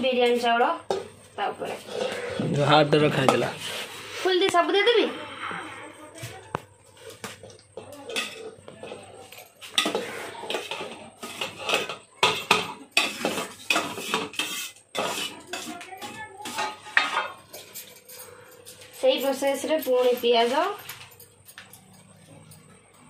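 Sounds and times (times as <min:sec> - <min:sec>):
spoon scraping steel bowl: 0:00.9 - 0:04.4, 0:07.8 - 0:18.9.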